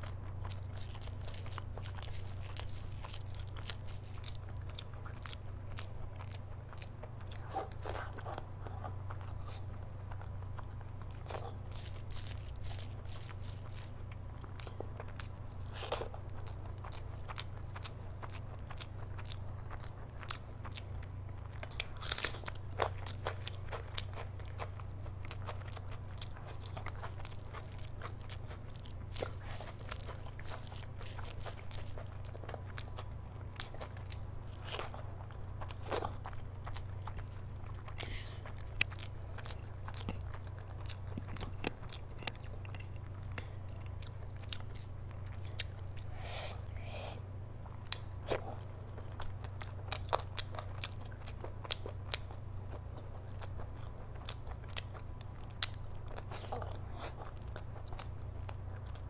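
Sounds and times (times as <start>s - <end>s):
wet chewing: 0.0s - 59.0s.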